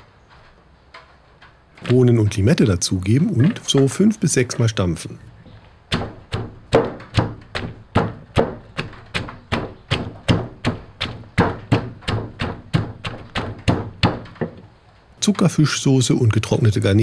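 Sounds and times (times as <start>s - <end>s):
pestle pounding in wooden mortar: 5.9s - 14.7s.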